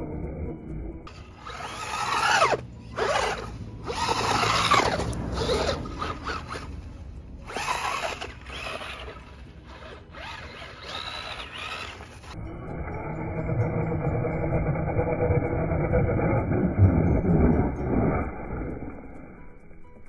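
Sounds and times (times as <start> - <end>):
electric motor whining in bursts: 1.1 - 6.8, 7.4 - 14.6.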